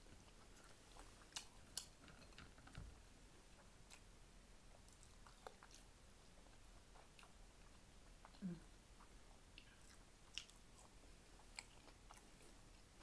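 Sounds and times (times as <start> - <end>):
faint chewing: 0.0 - 13.0.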